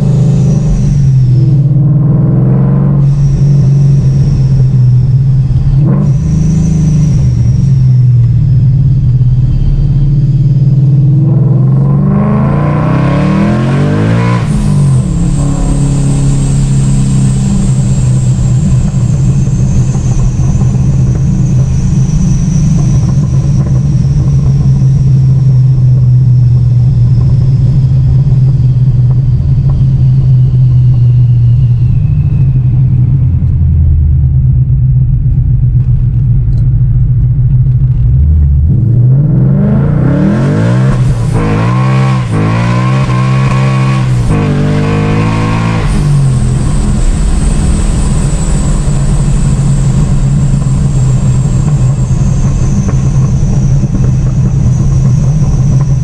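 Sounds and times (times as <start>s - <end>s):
car engine revving: 0.0s - 56.0s
high whine falling in pitch: 0.0s - 56.0s.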